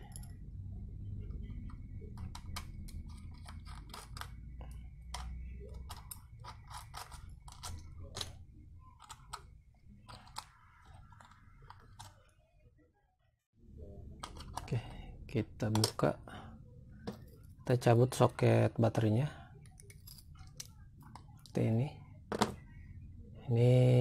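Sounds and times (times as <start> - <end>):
screwdriver clicks and scrapes: 1.6 - 8.4.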